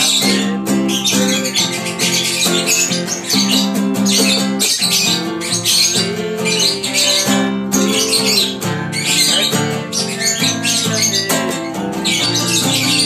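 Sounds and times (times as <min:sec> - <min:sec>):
acoustic guitar strumming: 0:00.0 - 0:13.0
lovebird chirping: 0:00.0 - 0:13.0.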